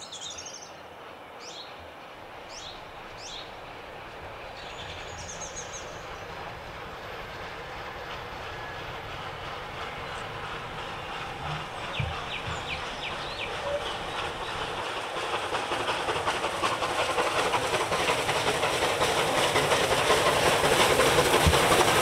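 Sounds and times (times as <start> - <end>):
steam train rumbling: 0.0 - 22.0
birds chirping: 2.4 - 6.5, 8.0 - 15.0.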